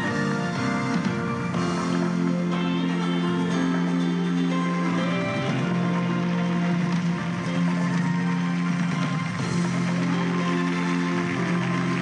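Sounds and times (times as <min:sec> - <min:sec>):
sustained theme music chords: 0:00.0 - 0:12.0.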